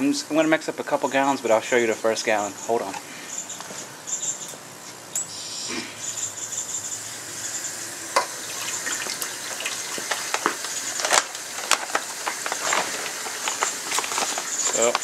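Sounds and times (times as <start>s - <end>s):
hose water pouring into a pitcher: 7.7s - 15.0s.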